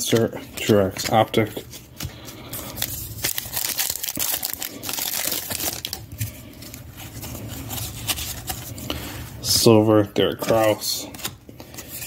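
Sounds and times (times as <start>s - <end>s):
foil pack crinkling: 0.0s - 9.1s
cards rustling: 0.0s - 12.0s.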